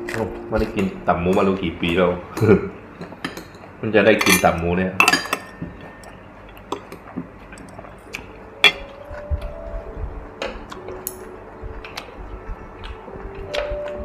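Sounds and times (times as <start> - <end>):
metal chopsticks clinking: 3.2 - 7.9.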